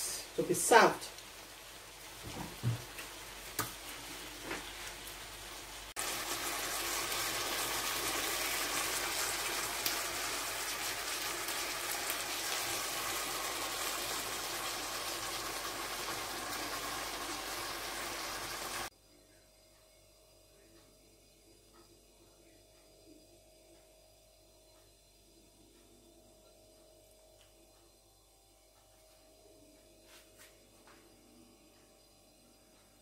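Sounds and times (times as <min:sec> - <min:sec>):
sauce bubbling in a frying pan: 0:00.8 - 0:18.9.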